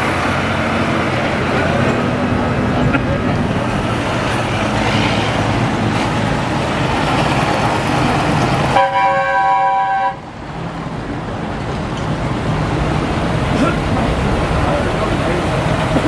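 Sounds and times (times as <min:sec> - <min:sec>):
tractor diesel engines running: 0:00.0 - 0:16.0
tractor horn chord: 0:08.8 - 0:10.2.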